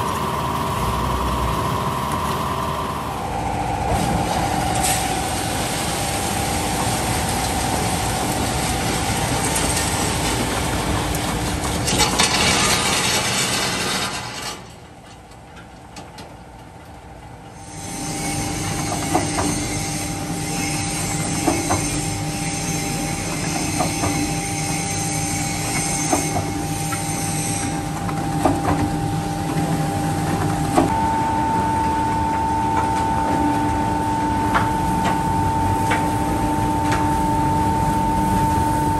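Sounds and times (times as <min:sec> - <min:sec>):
mixer discharging whine: 0:00.0 - 0:14.0, 0:17.6 - 0:38.9
machinery whine: 0:00.0 - 0:14.5, 0:17.6 - 0:38.9
conveyor belt rumbling: 0:00.0 - 0:38.9.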